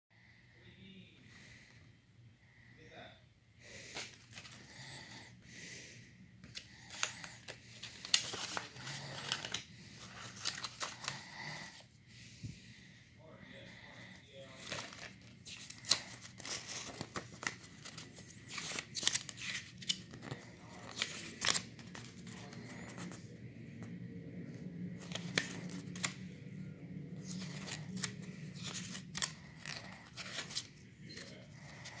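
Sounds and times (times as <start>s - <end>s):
glossy paper rustling: 6.4s - 11.8s, 14.5s - 23.2s, 27.2s - 32.0s.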